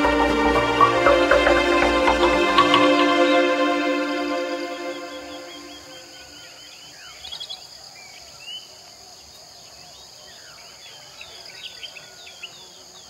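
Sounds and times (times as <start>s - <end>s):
steady high hiss: 0.0s - 7.0s.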